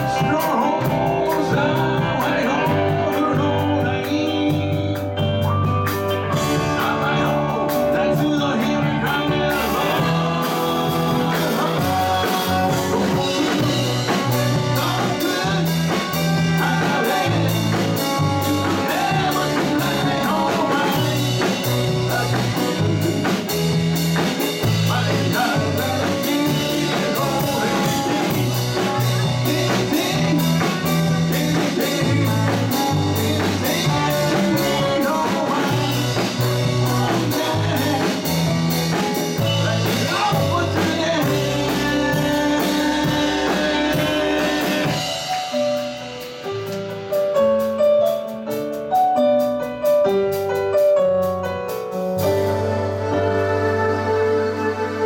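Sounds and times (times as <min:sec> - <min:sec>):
lead vocal singing: 0:00.0 - 0:46.3
live rock band playing: 0:00.0 - 0:55.0.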